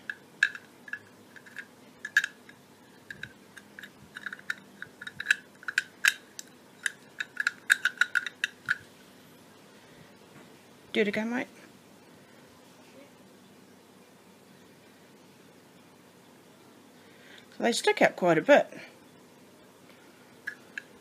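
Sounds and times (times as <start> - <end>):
small irregular clicks and taps: 0.0 - 8.8.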